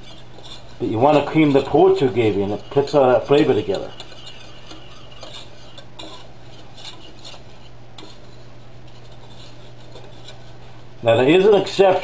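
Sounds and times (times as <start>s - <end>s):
low steady hum: 0.0s - 12.0s
whisk scraping metal saucepan: 0.0s - 12.0s.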